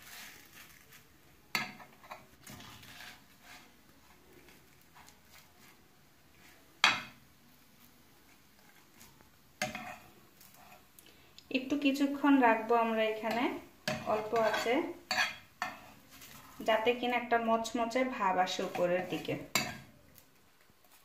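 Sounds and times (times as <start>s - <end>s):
spoon scraping a frying pan: 1.5s - 3.8s, 8.6s - 10.9s, 12.6s - 16.8s, 17.6s - 19.9s.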